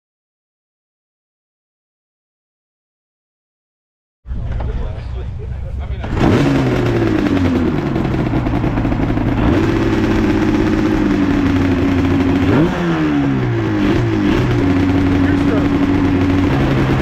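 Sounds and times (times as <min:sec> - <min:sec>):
motorcycle engine revving: 0:06.0 - 0:17.0.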